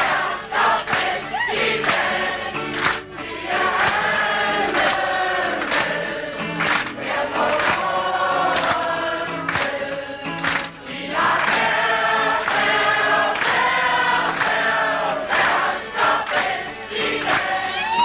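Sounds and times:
group singing in chorus: 0:00.0 - 0:18.0.

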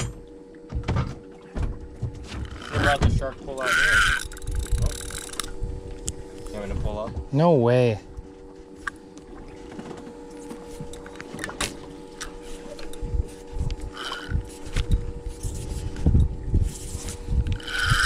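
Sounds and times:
boat hum: 0:00.0 - 0:18.0
fishing reel clicks and knocks: 0:02.5 - 0:03.0, 0:03.6 - 0:05.6, 0:10.9 - 0:16.4, 0:17.4 - 0:18.0.

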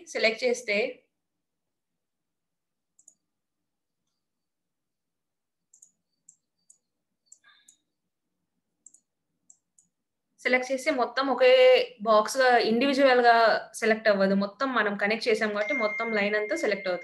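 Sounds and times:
computer mouse clicks: 0:02.9 - 0:03.3, 0:05.7 - 0:08.0, 0:08.8 - 0:10.0.

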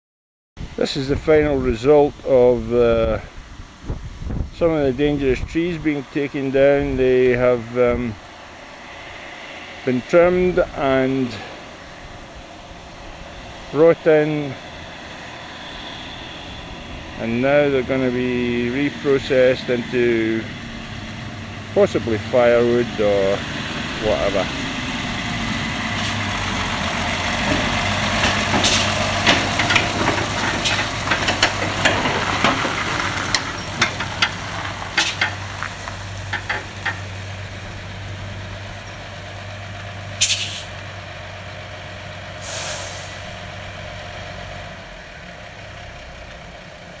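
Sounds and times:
diesel truck engine running: 0:00.6 - 0:47.0
sharp clicks and knocks: 0:27.4 - 0:37.1
air brake hisses: 0:28.6 - 0:29.0, 0:40.2 - 0:40.7, 0:42.4 - 0:43.3.

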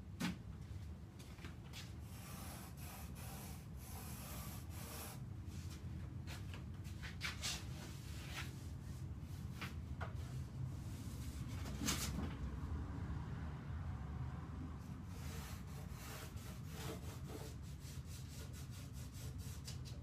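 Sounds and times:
pencil scratching on paper: 0:02.1 - 0:05.2, 0:15.1 - 0:20.0.

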